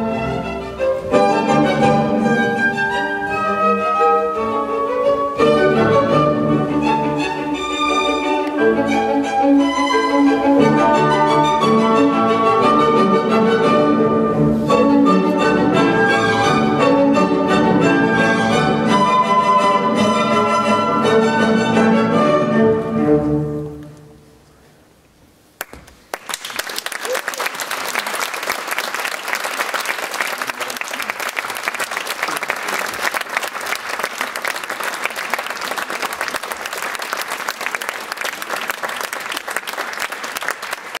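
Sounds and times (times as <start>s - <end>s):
audience applause: 25.6s - 41.0s.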